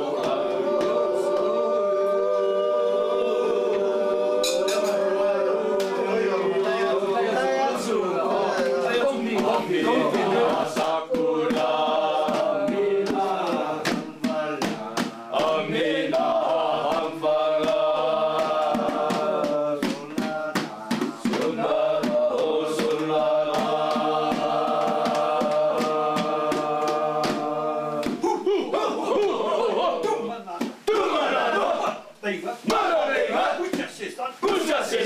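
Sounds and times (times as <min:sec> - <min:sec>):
group chanting: 0:00.0 - 0:35.0
percussive hits: 0:08.6 - 0:29.4.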